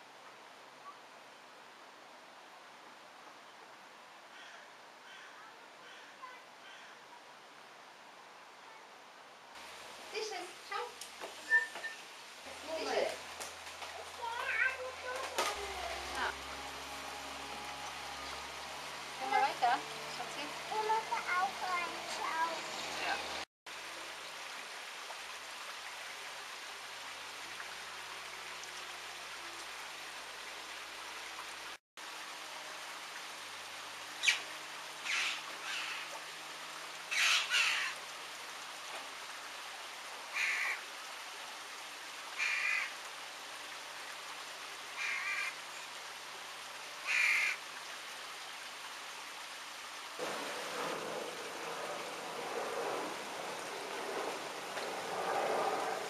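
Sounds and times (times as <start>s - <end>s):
bird calls: 11.4s - 12.1s, 34.2s - 36.2s, 37.1s - 38.0s
steady hiss: 23.7s - 56.0s
loud rushing noise: 50.2s - 56.0s.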